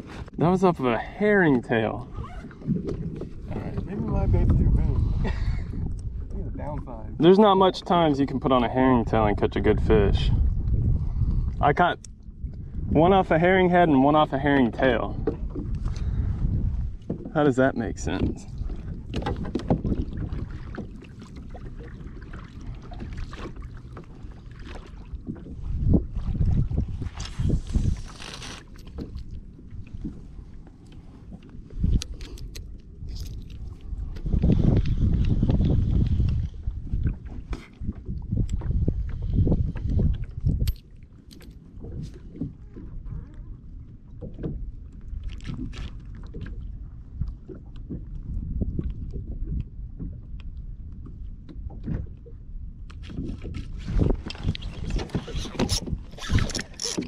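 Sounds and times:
wind buffeting microphone: 0.0 - 28.2, 28.8 - 41.1, 41.7 - 57.0
water slapping against kayak hull: 1.9 - 4.9, 18.0 - 32.2, 43.9 - 57.0
low rumble: 2.0 - 7.3, 7.9 - 17.2.

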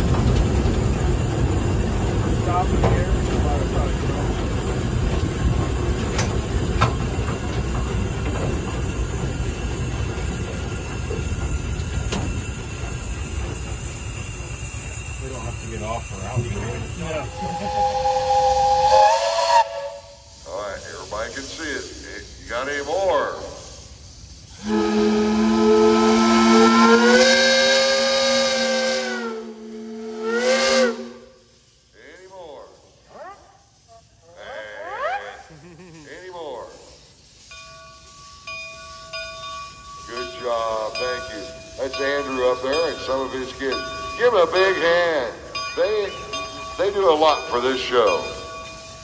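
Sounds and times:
steam engine rumbling clatter: 0.0 - 29.4, 35.7 - 49.0
steam whistle chord blast: 17.3 - 20.2, 24.6 - 31.5.

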